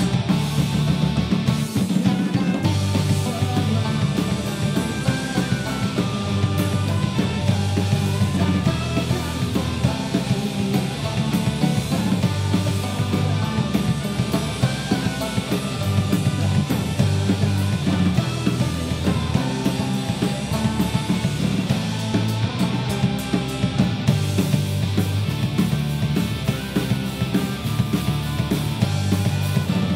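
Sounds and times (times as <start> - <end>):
drum kit: 0.0 - 29.9
guitars: 0.0 - 29.9
man singing: 2.0 - 7.0.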